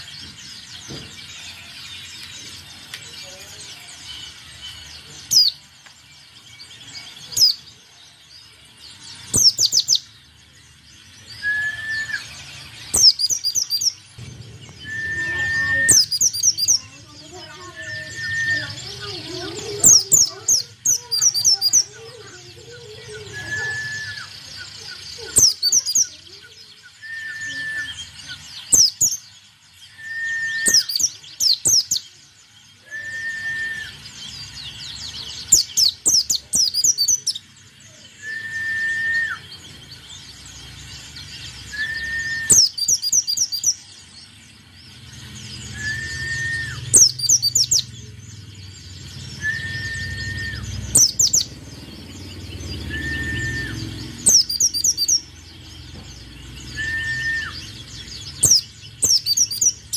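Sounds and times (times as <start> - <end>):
bird chirping in rapid bursts: 0.0 - 59.9
bird whistled note: 14.7 - 16.4, 32.8 - 34.0, 38.2 - 39.5, 41.7 - 42.8.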